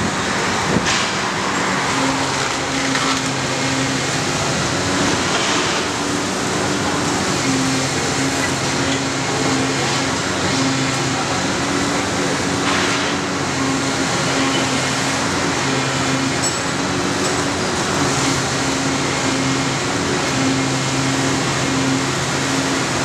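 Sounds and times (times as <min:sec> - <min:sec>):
excavator engine and hydraulics: 0:00.0 - 0:23.0.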